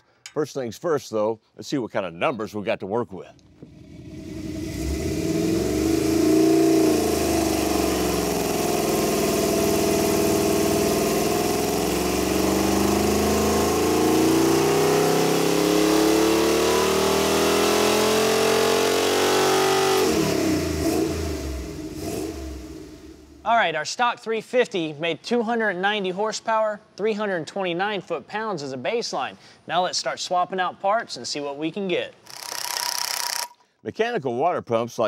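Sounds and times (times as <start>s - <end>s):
engine revving on dyno: 3.5s - 23.4s.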